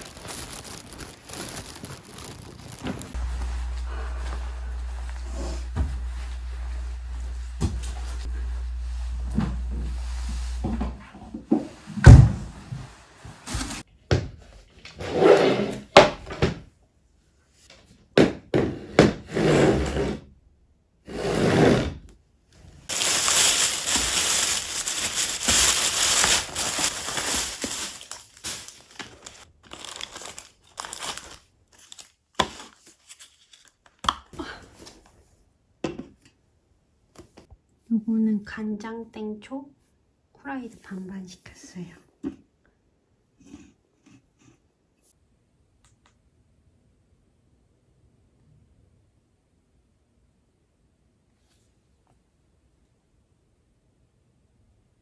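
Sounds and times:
plastic packaging crinkling and tearing: 0.0s - 3.8s, 22.9s - 34.0s.

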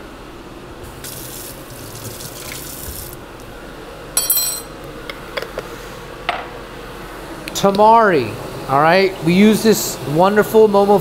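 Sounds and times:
kitchen tap running: 0.9s - 3.2s
glass bottle clinking: 4.2s - 4.7s.

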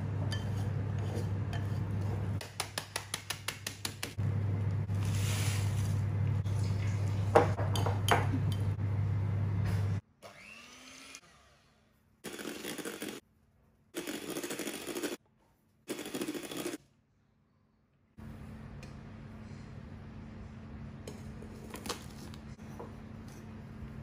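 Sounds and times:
steady low hum: 4.2s - 10.0s
electric hand mixer whipping: 12.3s - 13.2s, 14.0s - 15.2s, 15.9s - 16.8s.

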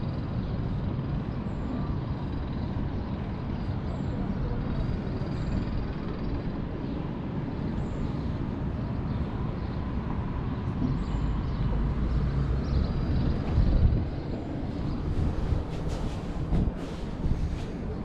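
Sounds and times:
rumble of passing vehicles: 0.0s - 18.0s.

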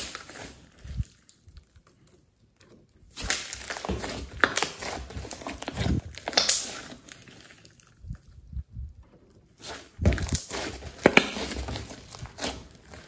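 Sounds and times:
slime popping and crackling: 0.0s - 8.6s, 9.5s - 13.0s
slime squishing: 0.0s - 13.0s.

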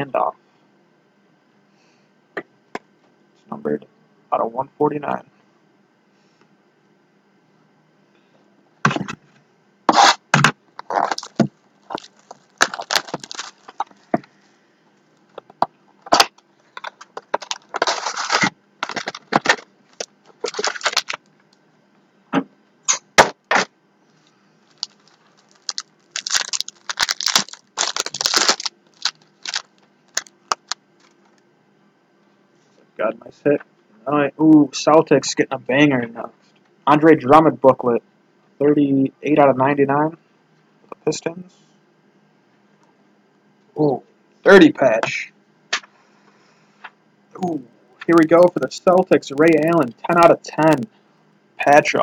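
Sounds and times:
cards scraping on table: 9.9s - 14.0s
plastic packaging crackling: 10.8s - 14.3s, 16.1s - 21.3s, 24.6s - 31.4s.

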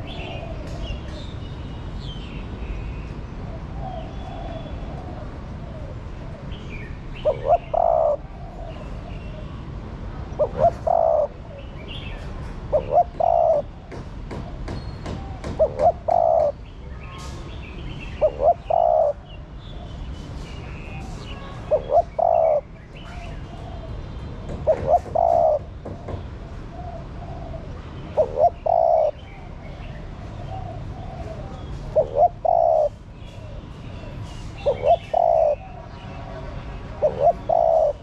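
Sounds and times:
dove cooing: 0.0s - 1.2s, 3.7s - 6.5s, 7.2s - 9.5s, 10.3s - 11.7s, 12.7s - 13.8s, 15.2s - 16.6s, 18.2s - 19.4s, 21.7s - 29.6s, 30.3s - 33.6s, 34.6s - 38.0s.

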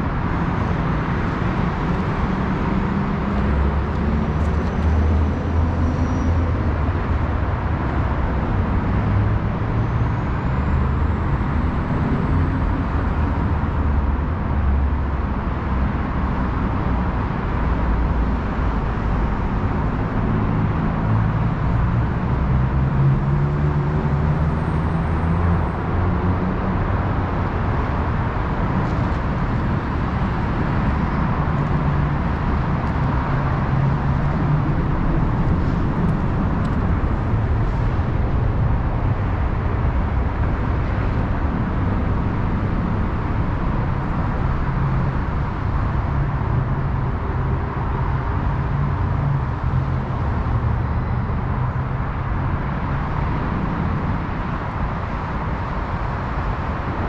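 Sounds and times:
road traffic rumble: 0.0s - 57.0s.

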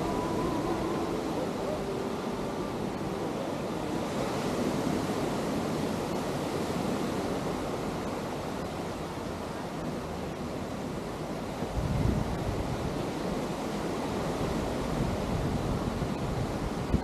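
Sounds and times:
ocean waves washing on beach: 0.0s - 17.0s
wind buffeting microphone: 11.0s - 17.0s.

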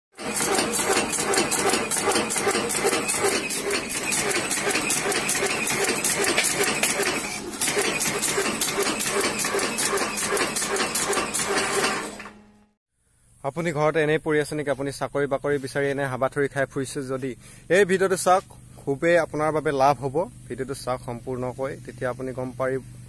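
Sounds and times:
machine clacking rapidly: 0.2s - 12.4s.

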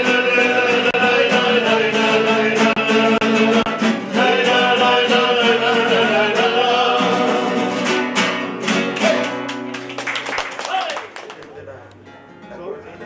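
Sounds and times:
man singing: 0.0s - 7.8s
strummed acoustic guitars: 0.0s - 10.2s, 11.6s - 13.0s.

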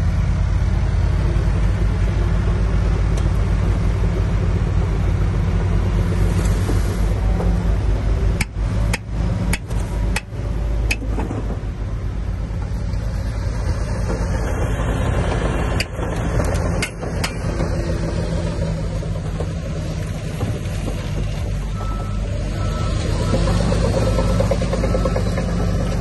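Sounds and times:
diesel engine running: 0.0s - 26.0s
sharp metallic knocks: 15.7s - 17.7s.

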